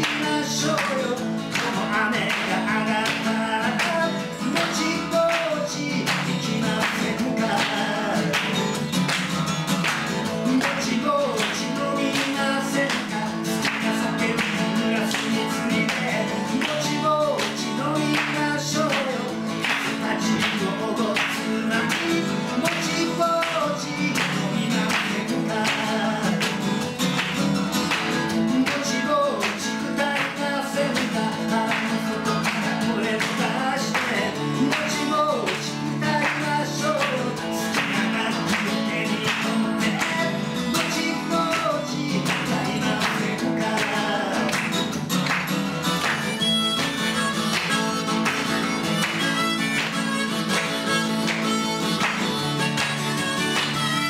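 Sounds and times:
person singing: 0.0 - 8.8, 10.3 - 26.8, 28.3 - 44.9
strummed acoustic guitar: 0.0 - 54.0.

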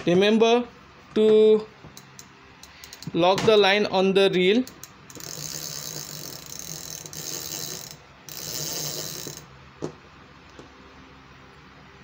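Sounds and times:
fishing reel ratcheting whirr: 2.0 - 3.1, 4.6 - 9.5.

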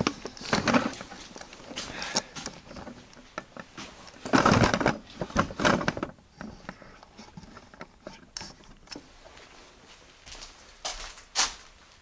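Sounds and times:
jacket fabric rustling on microphone: 9.0 - 12.0.

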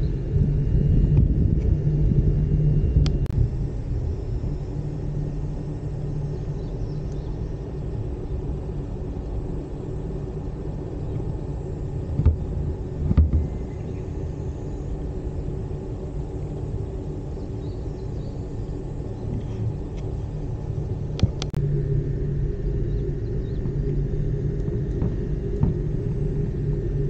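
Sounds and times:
gondola travelling along cable: 0.0 - 27.0
short thump: 12.2 - 13.6, 25.0 - 25.9.

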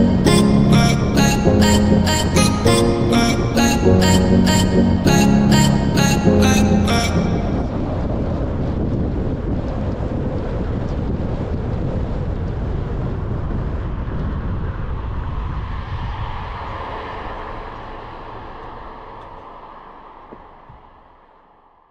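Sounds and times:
car road rumble: 6.9 - 21.8
wind buffeting microphone: 7.2 - 21.0.

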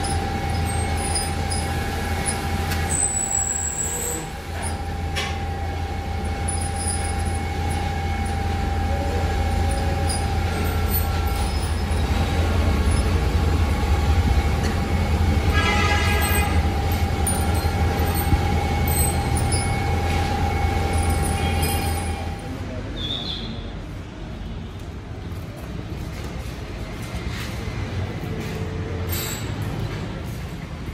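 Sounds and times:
high squeal: 0.0 - 13.4, 15.4 - 23.7
machinery rumble and hum: 0.0 - 22.9, 23.8 - 30.9.

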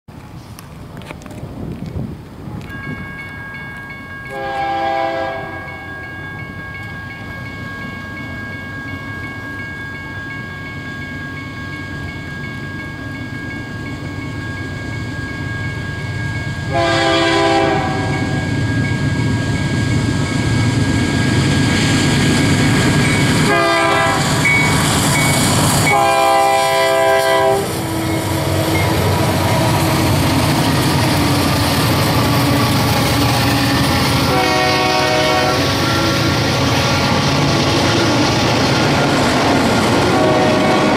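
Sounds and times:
train engines rumbling: 0.1 - 40.9
locomotive air horn blasts: 4.3 - 5.8, 16.7 - 18.5, 23.4 - 24.4, 25.8 - 29.4, 34.2 - 36.2, 40.1 - 40.9.

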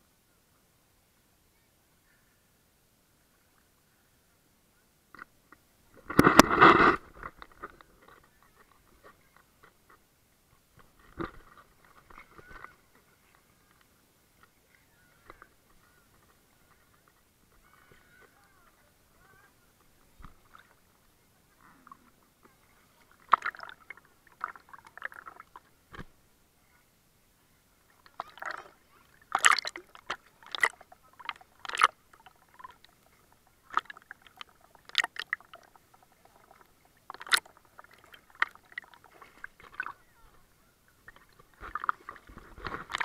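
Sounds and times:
sea water sloshing and splashing: 23.0 - 25.7, 28.0 - 40.1, 41.0 - 43.0.

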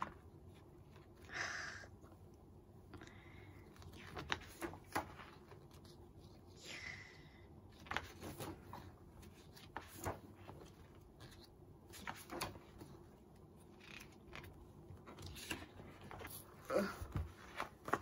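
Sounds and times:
book pages being turned: 3.7 - 6.6, 7.7 - 18.0.

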